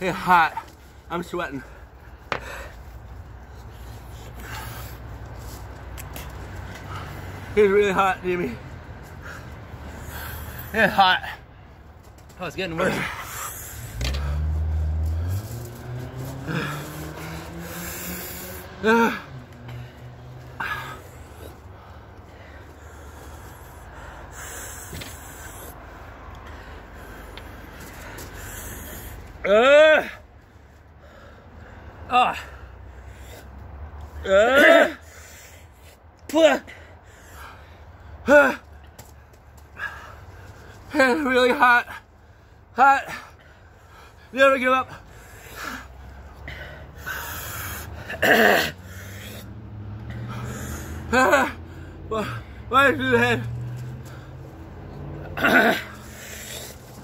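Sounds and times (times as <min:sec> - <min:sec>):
man breathing hard: 0:00.0 - 0:07.6, 0:08.6 - 0:11.9, 0:13.0 - 0:14.9, 0:16.4 - 0:29.5, 0:30.2 - 0:34.2, 0:34.9 - 0:40.9, 0:42.0 - 0:52.8, 0:54.0 - 0:57.0
man sniffing: 0:12.9 - 0:15.1, 0:16.2 - 0:29.4, 0:45.0 - 0:52.7, 0:53.7 - 0:57.0
man groaning: 0:16.4 - 0:17.0, 0:18.7 - 0:19.3, 0:29.4 - 0:30.2, 0:32.1 - 0:32.6, 0:34.2 - 0:35.0, 0:38.2 - 0:38.7, 0:51.0 - 0:53.5, 0:55.3 - 0:56.7.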